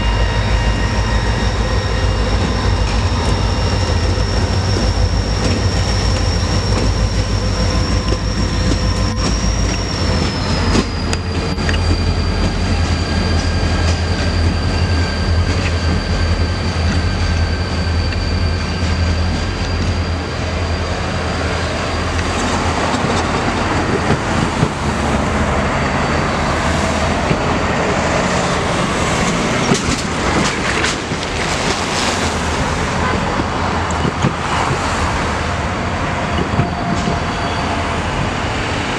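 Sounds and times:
high whine: 0:00.0 - 0:34.0
train rumbling past: 0:00.0 - 0:38.9
wheels clattering on rails: 0:02.1 - 0:16.2, 0:26.5 - 0:35.3.

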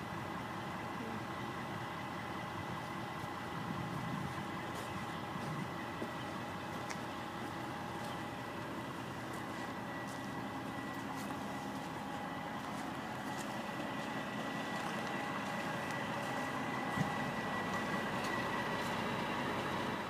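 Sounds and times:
truck diesel engine idling: 0:00.0 - 0:20.0.

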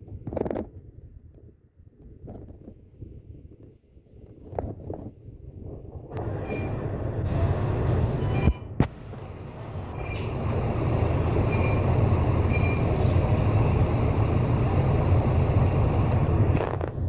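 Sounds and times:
bus engine idling: 0:06.2 - 0:17.0
faint short beeps: 0:06.4 - 0:06.8, 0:08.2 - 0:08.7, 0:10.0 - 0:10.3, 0:11.4 - 0:11.9, 0:12.5 - 0:13.0.

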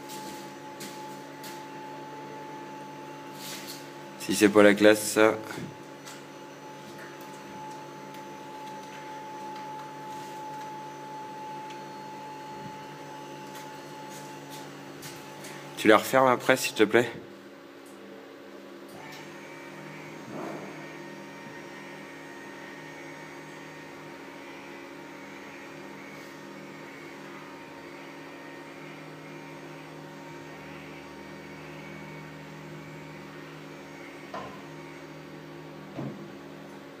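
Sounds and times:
electric lift motor humming: 0:00.0 - 0:16.0, 0:17.9 - 0:37.0.

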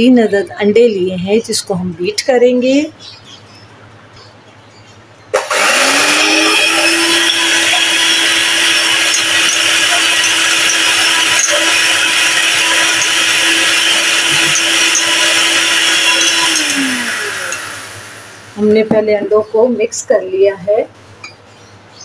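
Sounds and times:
electric hand mixer whisking: 0:05.4 - 0:18.7.

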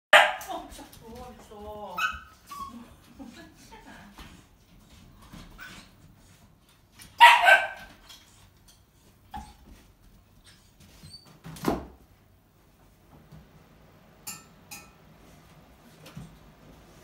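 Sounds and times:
puppy barking: 0:00.1 - 0:00.5, 0:07.2 - 0:08.0.

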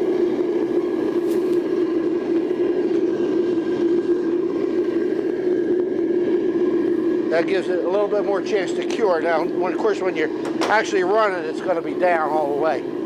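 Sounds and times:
gas burner roaring: 0:00.0 - 0:13.0.

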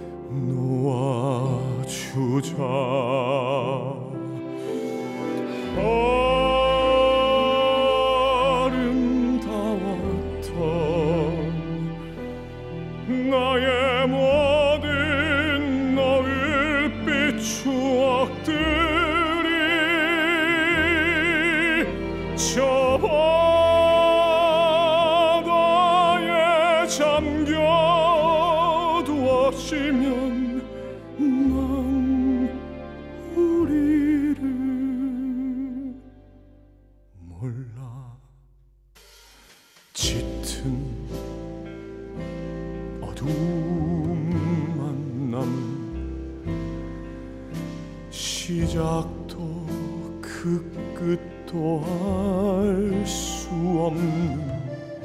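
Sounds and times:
man singing with vibrato: 0:00.0 - 0:04.4, 0:05.4 - 0:12.0, 0:13.0 - 0:32.6, 0:37.2 - 0:38.4, 0:40.0 - 0:41.3, 0:43.0 - 0:46.0, 0:48.1 - 0:55.0
soft instrumental accompaniment: 0:00.0 - 0:38.2, 0:39.0 - 0:55.0.

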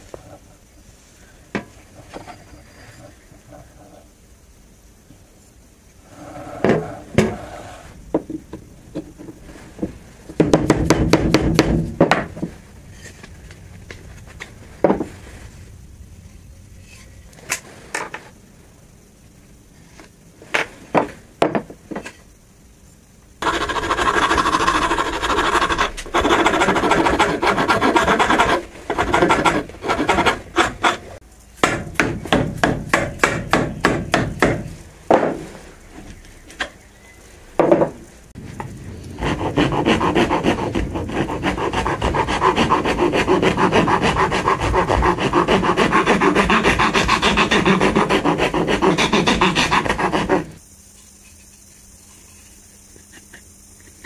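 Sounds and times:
file rasping on wood: 0:23.4 - 0:31.2, 0:39.2 - 0:50.6.

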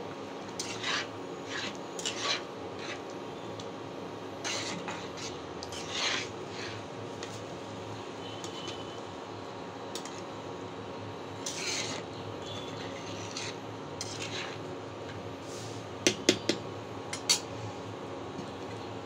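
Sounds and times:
spoon stirring thick dal: 0:00.5 - 0:03.2, 0:04.4 - 0:07.4, 0:11.4 - 0:14.7.

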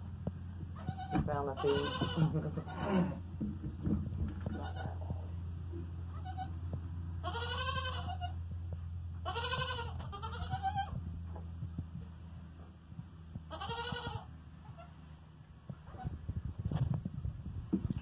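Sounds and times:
low steady hum: 0:00.0 - 0:18.0
goat bleating: 0:00.8 - 0:03.3, 0:04.4 - 0:05.1, 0:06.1 - 0:06.6, 0:07.2 - 0:08.4, 0:09.2 - 0:11.0, 0:13.5 - 0:15.0.

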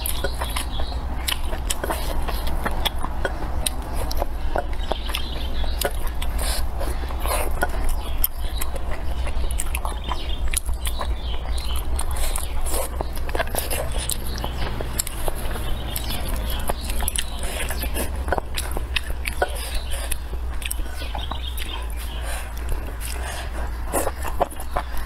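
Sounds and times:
mouth clicks and smacks: 0:00.0 - 0:25.0
person chewing food: 0:00.0 - 0:25.0
steady low hum: 0:00.0 - 0:25.0.

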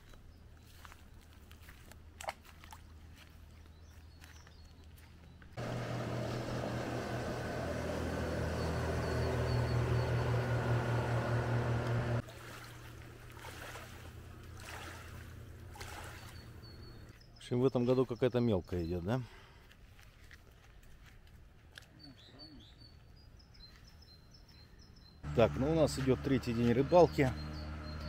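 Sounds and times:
motorboat engine passing: 0:05.6 - 0:17.1, 0:25.2 - 0:28.0.

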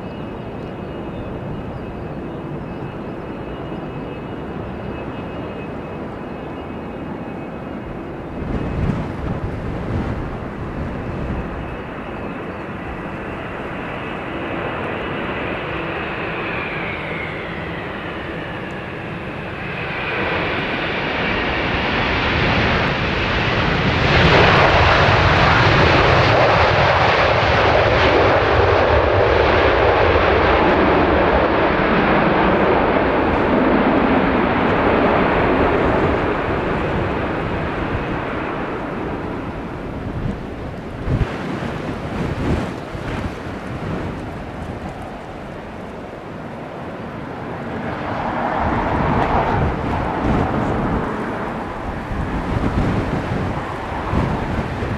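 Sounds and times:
jet engines whining: 0:00.0 - 0:54.9.

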